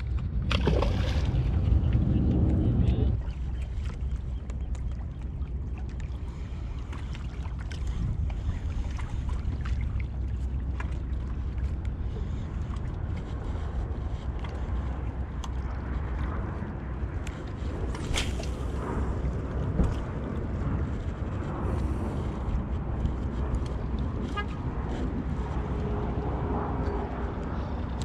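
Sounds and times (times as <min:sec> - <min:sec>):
water lapping against rocks: 0:00.0 - 0:20.1
wind buffeting microphone: 0:00.0 - 0:28.0.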